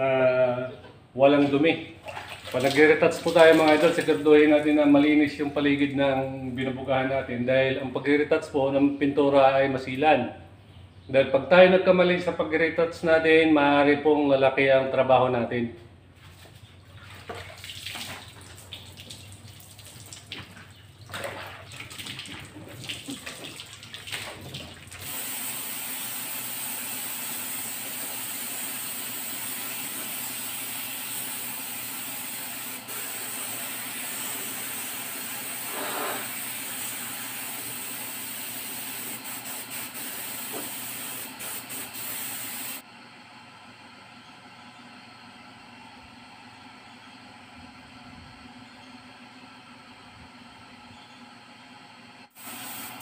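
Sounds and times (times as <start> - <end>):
rubbing and handling sounds: 16.2 - 17.3
paint spray gun hissing: 25.0 - 42.8, 52.3 - 53.0.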